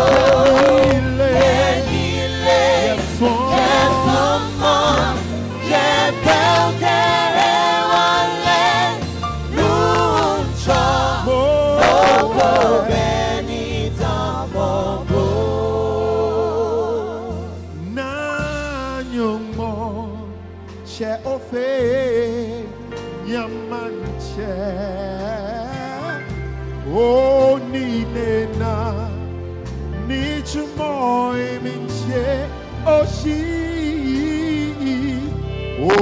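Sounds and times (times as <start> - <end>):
guitars: 0.0 - 14.5, 32.0 - 36.0
backing singers holding notes: 0.0 - 17.5
drums: 0.0 - 21.2
person singing lead vocal: 0.0 - 29.3, 30.0 - 36.0
bass: 0.0 - 36.0
keyboards: 0.0 - 36.0.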